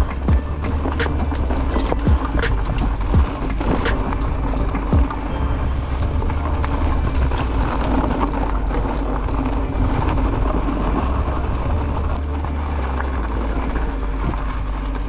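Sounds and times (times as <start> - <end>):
bike rattling: 0.0 - 15.0
bike tyre noise: 0.0 - 15.0.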